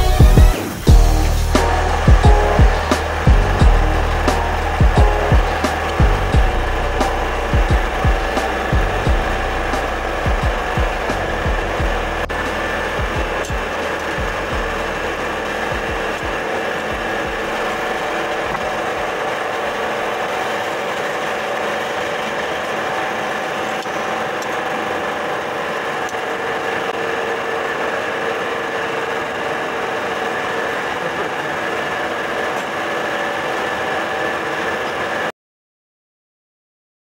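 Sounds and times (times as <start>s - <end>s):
low bumps: 0.0s - 19.1s
compressor and fan humming: 0.0s - 35.3s.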